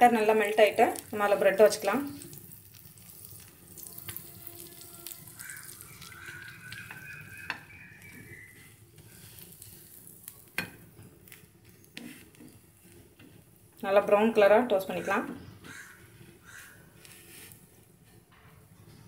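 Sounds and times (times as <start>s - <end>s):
bread sizzling in butter: 0.0s - 14.4s, 15.7s - 18.2s.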